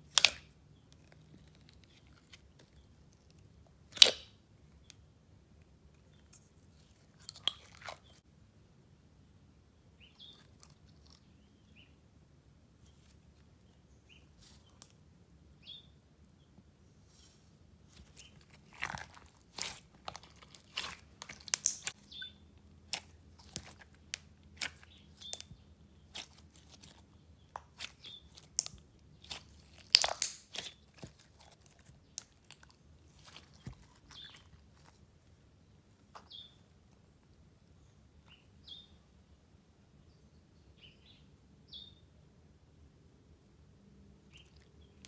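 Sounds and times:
slime crackling and popping: 3.9s - 4.3s, 18.0s - 22.3s, 22.9s - 25.5s, 26.1s - 35.0s.

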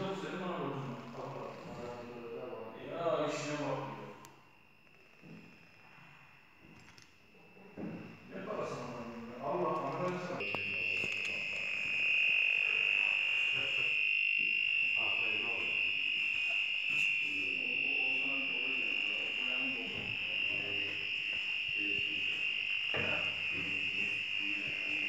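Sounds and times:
faint voices: 7.4s - 25.0s
high-pitched tone: 10.4s - 25.0s.

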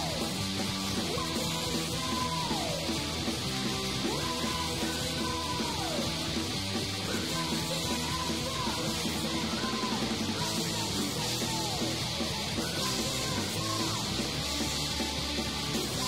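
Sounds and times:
hardcore punk band playing: 0.0s - 16.0s.

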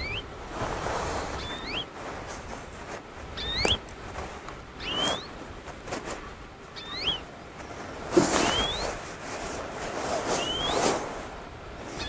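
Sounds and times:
high-pitched rising squeaky calls: 0.0s - 0.3s, 1.4s - 1.9s, 3.4s - 3.8s, 4.8s - 5.3s, 6.8s - 7.2s, 8.4s - 9.0s, 10.3s - 10.9s
rustling and crunching: 0.0s - 12.0s.

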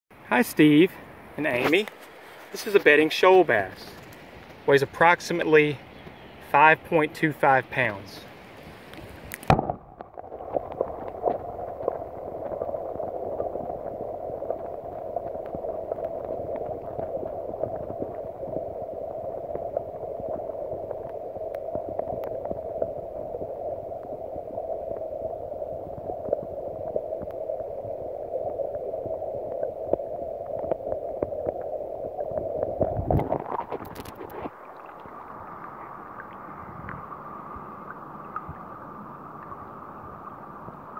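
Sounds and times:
muffled underwater rushing: 1.0s - 40.9s
water sloshing: 32.8s - 40.5s.

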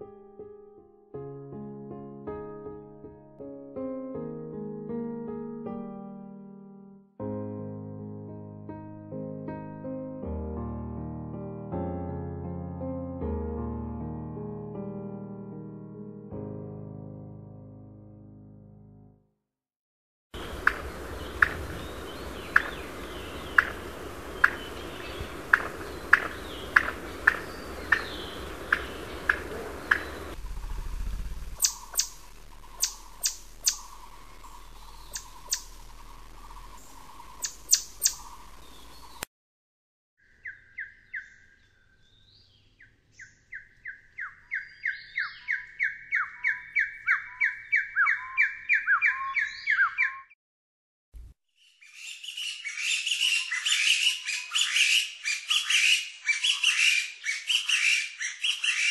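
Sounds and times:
sharp bird clicks: 20.4s - 21.8s, 22.5s - 24.8s, 25.4s - 30.8s, 31.4s - 39.3s
steady background hiss: 20.4s - 39.1s
partridge whistled song: 31.6s - 34.0s, 34.6s - 35.8s, 37.3s - 38.4s, 43.2s - 50.4s, 51.6s - 58.9s
pheasant short high calls: 31.6s - 34.1s.

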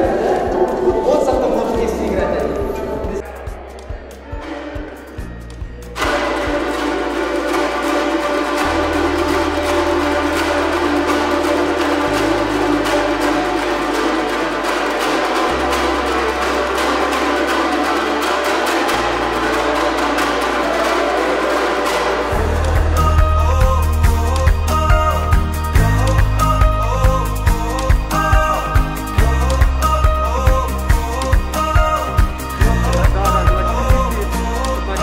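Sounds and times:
lutes strumming fast tune: 0.0s - 35.0s
sustained low bass: 22.2s - 35.0s.

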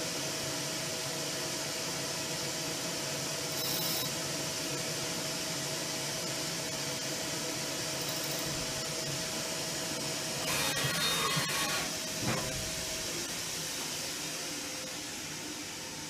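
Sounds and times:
machining centre humming: 7.9s - 16.0s.

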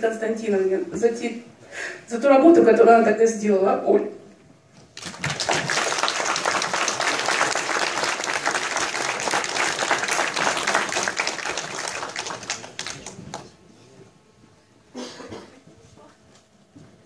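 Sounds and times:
audience applauding: 5.0s - 13.6s.

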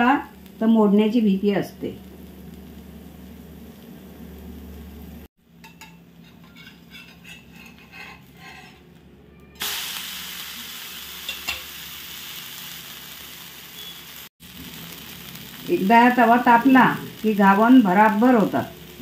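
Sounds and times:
pancake sizzling in hot pan: 0.0s - 8.3s, 9.6s - 19.0s
steel spatula flipping pancake: 5.6s - 8.8s.

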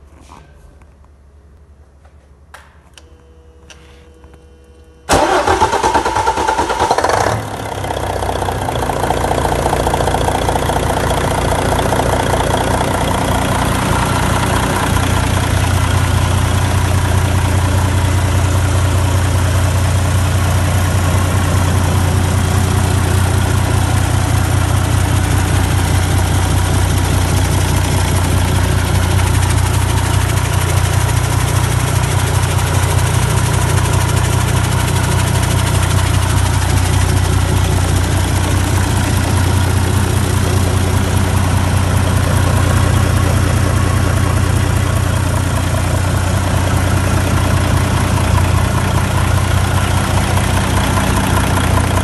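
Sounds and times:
starter motor cranking: 5.1s - 7.4s
diesel engine idling: 5.1s - 52.0s.

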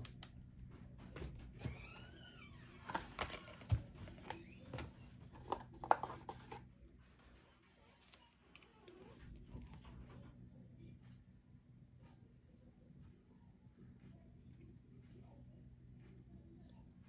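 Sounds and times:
paper rustling: 2.8s - 7.3s.

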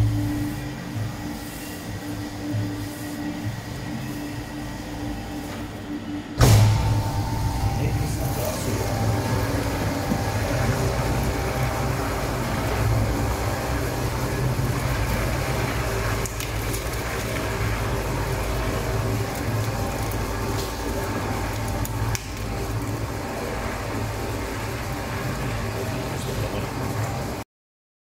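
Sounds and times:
meat grinder humming and grinding: 6.4s - 27.4s.

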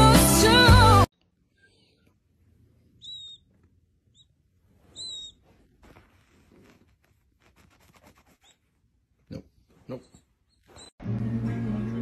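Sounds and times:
faint rustling: 2.4s - 8.8s.

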